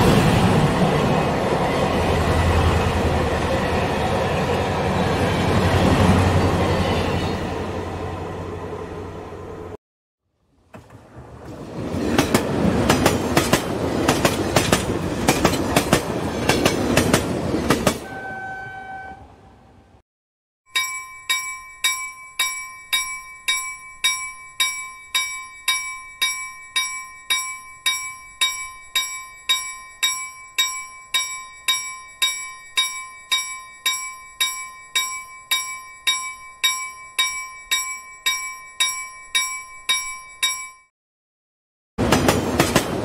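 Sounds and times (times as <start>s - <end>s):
bell struck rapidly: 20.7s - 40.9s.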